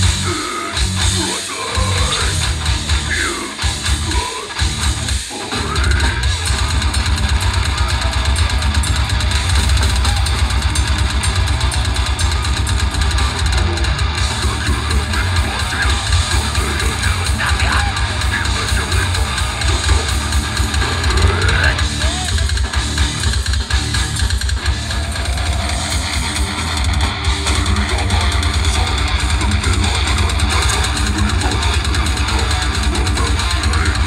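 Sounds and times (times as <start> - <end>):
vocals: 0.0 - 6.5, 13.6 - 23.0, 24.7 - 34.0
distorted guitar and bass: 0.0 - 34.0
fast dense drumming: 0.0 - 34.0.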